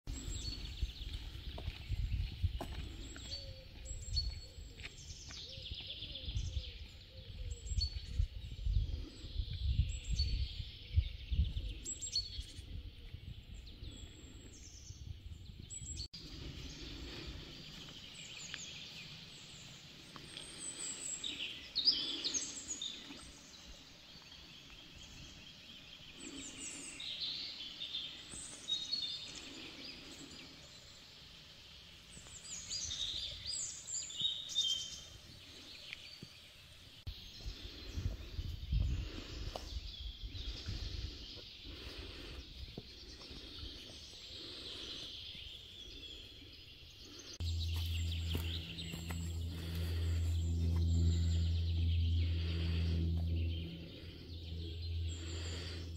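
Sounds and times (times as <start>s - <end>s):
songbirds singing and chirping: 0.1s - 55.9s
low rumble: 47.4s - 55.9s.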